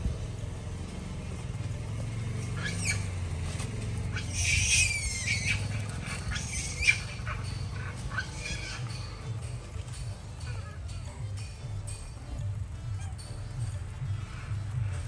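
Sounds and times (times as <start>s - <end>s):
low steady hum: 0.0s - 15.0s
monkeys squealing: 2.1s - 11.5s, 12.8s - 15.0s.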